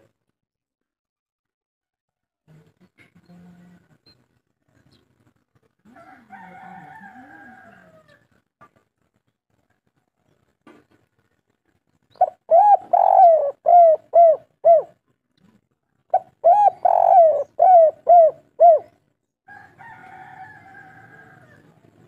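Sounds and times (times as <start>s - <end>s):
dove cooing song: 12.2s - 15.0s, 16.1s - 19.0s.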